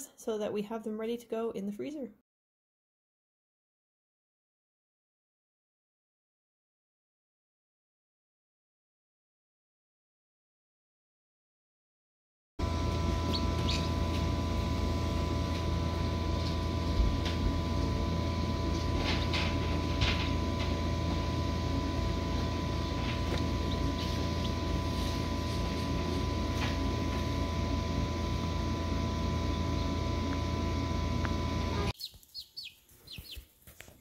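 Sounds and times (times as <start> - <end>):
incubator humming: 12.6 - 33.4
chicks peeping: 12.7 - 19.8, 21.6 - 27.4, 31.2 - 34.0.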